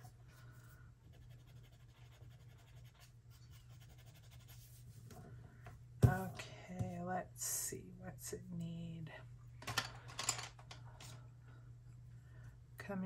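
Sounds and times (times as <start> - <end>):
low steady hum: 0.0 - 13.0
drawing tool scratching paper: 1.1 - 4.8.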